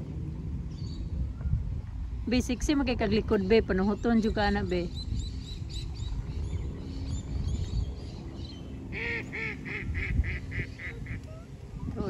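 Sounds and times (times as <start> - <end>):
steady low rumble: 0.0 - 12.0
goose honking: 9.0 - 11.2.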